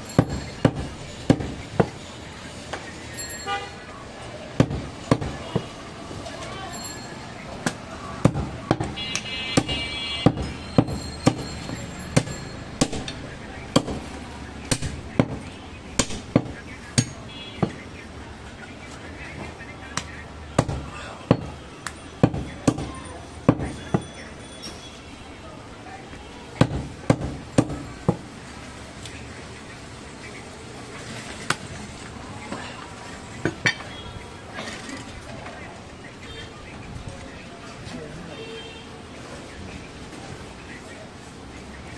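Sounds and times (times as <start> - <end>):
cleaver chopping meat and bone: 0.2 - 2.0, 4.6 - 5.4, 7.6 - 17.8, 20.0 - 24.1, 26.6 - 28.2.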